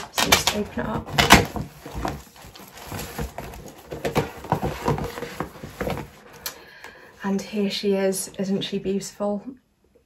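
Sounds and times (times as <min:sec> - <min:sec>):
paper packaging rustling: 0:00.0 - 0:06.4.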